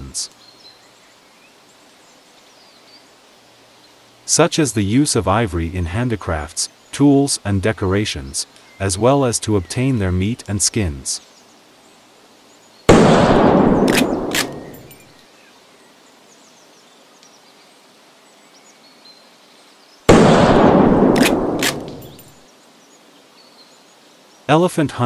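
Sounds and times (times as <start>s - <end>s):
gunshots with echo: 12.9s - 15.0s, 20.1s - 22.3s
sharp clicks: 13.8s - 15.0s, 21.0s - 22.3s
faint bird chirps: 13.8s - 20.1s.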